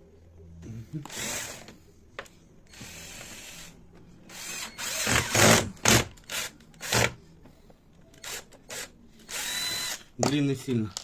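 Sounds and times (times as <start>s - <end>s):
cordless drill driving screws: 1.1s - 1.7s, 4.3s - 7.2s, 8.2s - 10.0s.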